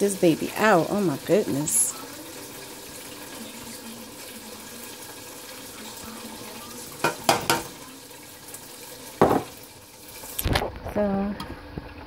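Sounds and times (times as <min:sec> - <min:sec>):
food sizzling in a skillet: 0:00.0 - 0:12.0.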